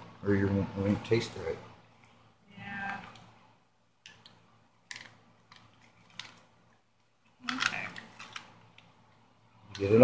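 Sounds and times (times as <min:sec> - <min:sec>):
foil packet tapping and rustling: 0:04.9 - 0:06.5.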